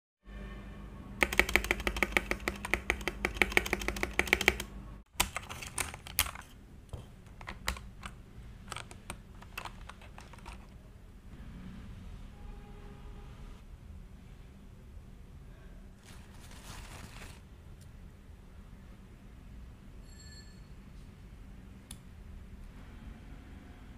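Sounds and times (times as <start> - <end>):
mechanical keyboard typing: 1.2 - 6.6, 7.3 - 10.8.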